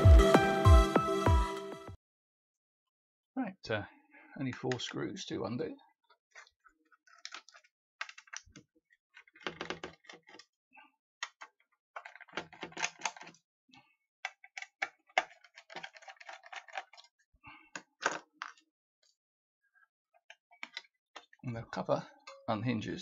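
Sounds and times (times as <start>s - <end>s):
hands clicking and scraping metal case: 6.0s - 10.5s, 11.2s - 13.4s, 14.2s - 19.2s, 20.2s - 21.4s.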